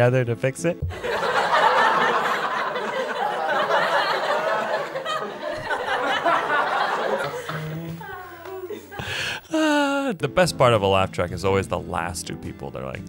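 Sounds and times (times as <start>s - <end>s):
studio audience laughing: 0.9s - 9.2s.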